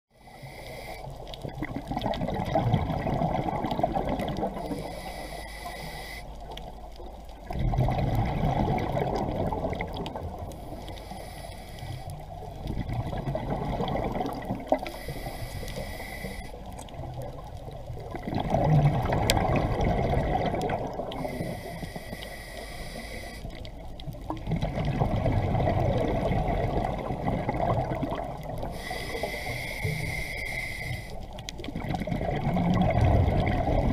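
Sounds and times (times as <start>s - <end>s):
exhaled bubbles underwater: 1.1s - 5.3s, 6.3s - 11.1s, 12.0s - 22.3s, 22.9s - 33.9s
regulator hiss: 4.7s - 6.5s, 10.6s - 12.2s, 14.9s - 16.7s, 21.2s - 23.6s, 28.6s - 31.4s.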